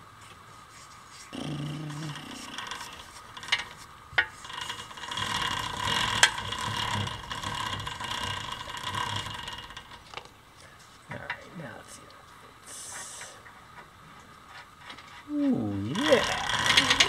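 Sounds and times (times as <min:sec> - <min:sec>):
metal nut turning and scraping: 0:00.8 - 0:10.3.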